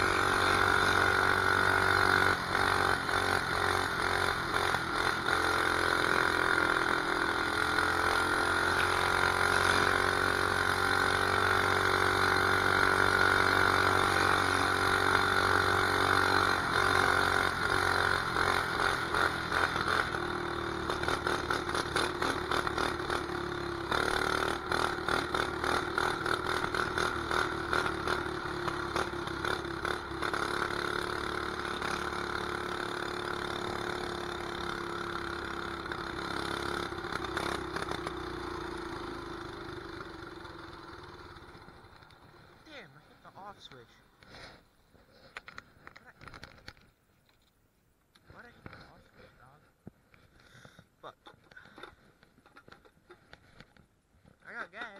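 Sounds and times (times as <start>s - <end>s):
small engine running: 0.0s - 42.7s.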